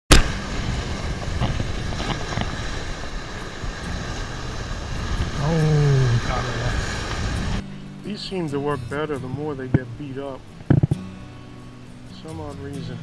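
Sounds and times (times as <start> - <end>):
wind on microphone: 0.1 - 7.6, 10.6 - 11.0
surf breaking over rocks: 0.1 - 13.0
low falling voice-like tone: 5.4 - 6.7.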